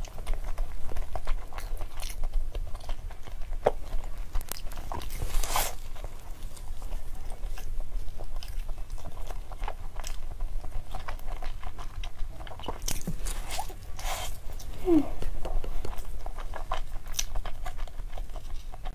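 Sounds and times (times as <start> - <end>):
person chewing crunchy food: 0.0 - 18.9.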